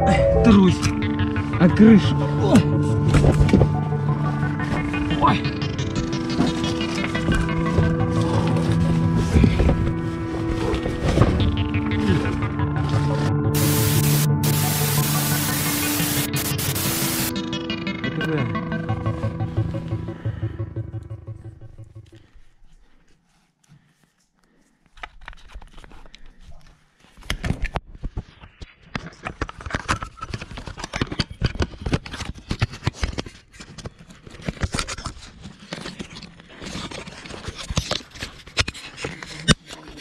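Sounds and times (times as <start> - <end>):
background music: 0.0 - 22.3
crunching and scraping over rubble: 28.9 - 40.0.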